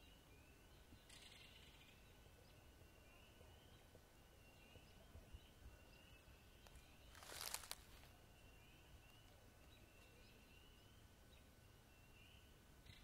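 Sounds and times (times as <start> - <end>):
crunching rustle: 6.6 - 8.1.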